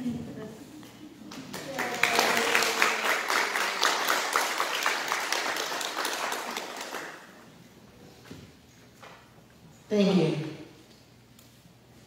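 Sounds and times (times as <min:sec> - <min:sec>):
crowd clapping: 0:01.2 - 0:07.4.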